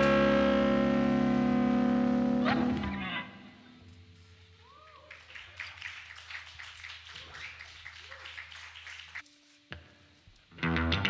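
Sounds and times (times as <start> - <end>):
distorted electric guitar chord: 0.0 - 3.7
amplifier hum: 0.0 - 3.9
faint swooping guitar notes: 0.0 - 3.9.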